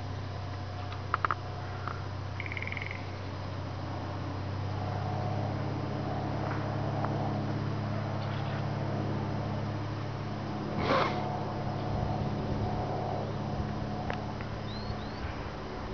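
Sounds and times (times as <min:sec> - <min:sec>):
light aircraft droning: 0:00.0 - 0:15.9
bird trill: 0:01.8 - 0:03.3, 0:14.7 - 0:15.3.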